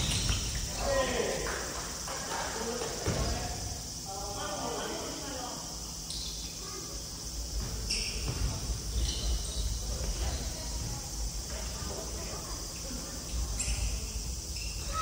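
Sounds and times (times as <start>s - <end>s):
distant voices in hall: 0.0s - 15.0s
high-pitched hiss: 0.0s - 15.0s
shoes squeaking on wooden floor: 7.6s - 10.7s.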